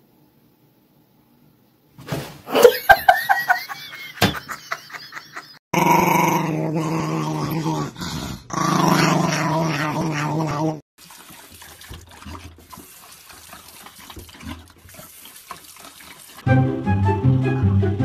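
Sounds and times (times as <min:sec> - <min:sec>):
small dog growling: 0:05.7 - 0:10.8.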